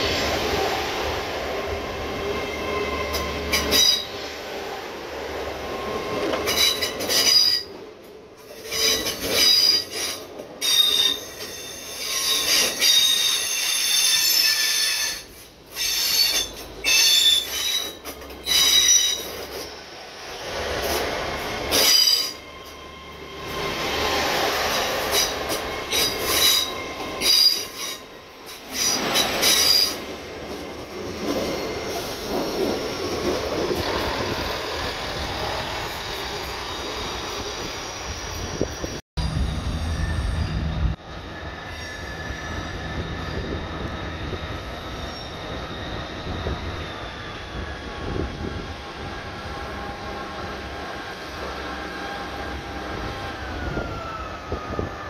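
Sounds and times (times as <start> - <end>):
train wheels squealing: 2.3 - 4.4, 5.7 - 7.7, 8.4 - 55.0
low rumble: 39.2 - 41.0.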